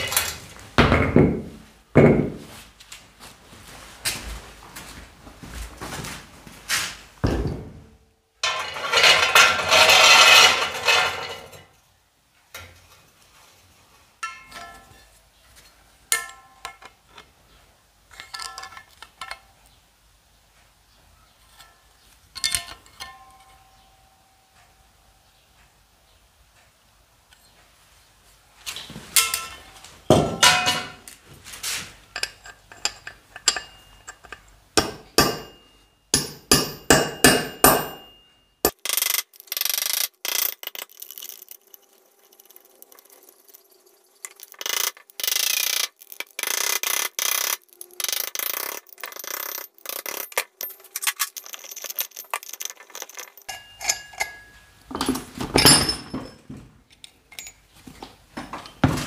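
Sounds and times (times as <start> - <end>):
hammer knocking and scraping punch: 0.8 - 2.5, 32.8 - 38.3
hammer striking steel: 34.8 - 38.8.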